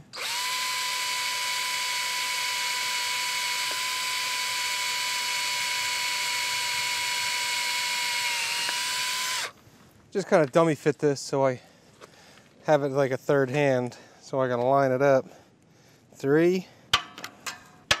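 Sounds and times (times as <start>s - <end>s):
cordless drill whining: 0.0s - 9.6s.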